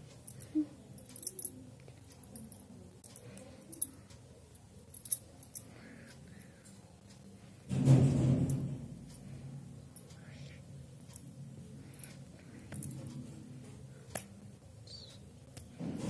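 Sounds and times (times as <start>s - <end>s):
bangles clinking and jingling: 0.2s - 4.0s, 4.8s - 5.8s, 11.9s - 13.1s.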